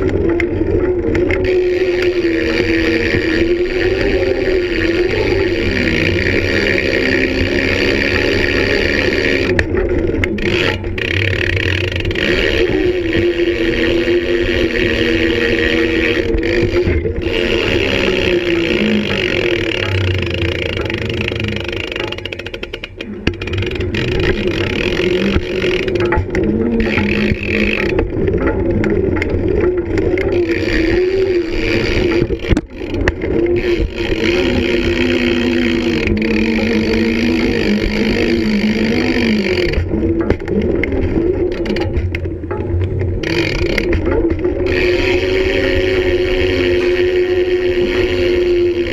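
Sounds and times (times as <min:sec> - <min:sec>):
sharp clacks: 0:00.0 - 0:48.9
wheels rolling on concrete: 0:00.0 - 0:48.9.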